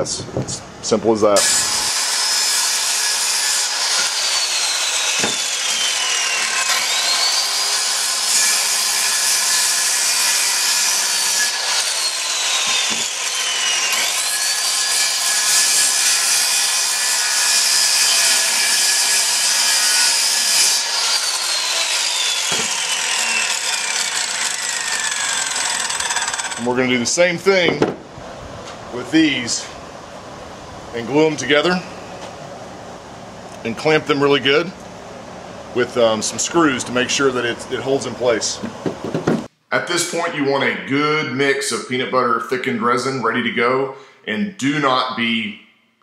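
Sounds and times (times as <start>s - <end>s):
circular saw cutting plywood: 1.4s - 27.3s
wood knocking: 5.2s - 5.4s, 22.5s - 22.7s, 27.7s - 28.1s, 38.6s - 39.5s.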